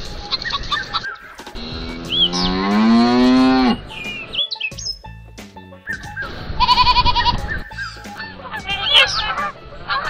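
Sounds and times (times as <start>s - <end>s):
bird chirps: 0.3s - 2.7s, 3.7s - 5.1s, 5.8s - 9.4s
cow mooing: 1.6s - 3.9s
hens clucking: 6.6s - 10.0s.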